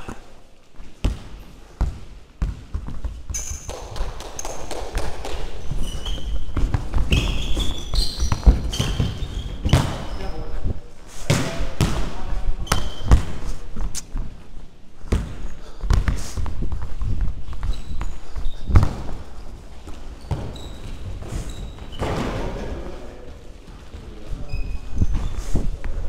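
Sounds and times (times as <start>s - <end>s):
ball kicks and bounces: 1.0s - 10.2s, 11.2s - 14.3s, 15.0s - 18.1s, 18.7s - 19.2s, 19.8s - 22.6s
shoe squeaks on floor: 3.3s - 4.7s, 5.5s - 10.6s, 12.6s - 13.2s, 17.6s - 19.1s, 20.1s - 22.4s, 24.3s - 25.8s
rumble of players running: 15.9s - 26.0s.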